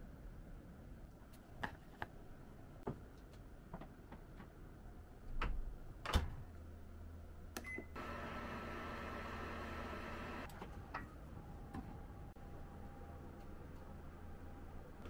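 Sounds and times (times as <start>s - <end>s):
microwave low hum: 6.1s - 15.0s.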